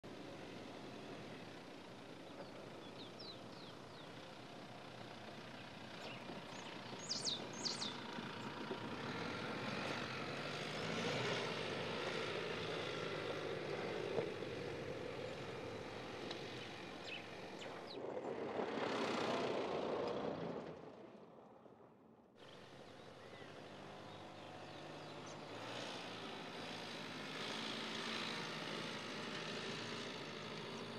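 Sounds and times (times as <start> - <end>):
pickup truck engine: 0.0 - 30.9
birds chirping: 2.0 - 9.2, 14.0 - 18.4, 22.6 - 25.8.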